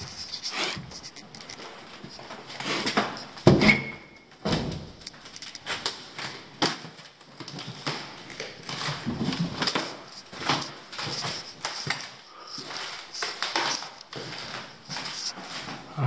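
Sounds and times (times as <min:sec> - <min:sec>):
footsteps on hard surface: 0:07.4 - 0:16.0.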